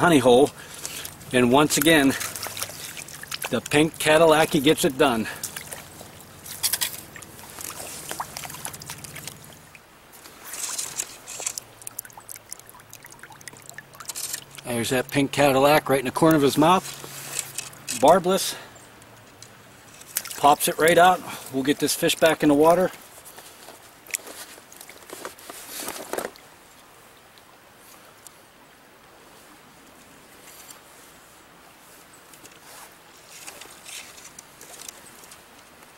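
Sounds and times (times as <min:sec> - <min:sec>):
stream current rushing: 0:00.0 - 0:35.9
water splashing and dripping: 0:00.1 - 0:18.2, 0:19.0 - 0:23.0
hands handling gear: 0:10.2 - 0:11.7, 0:23.3 - 0:26.4.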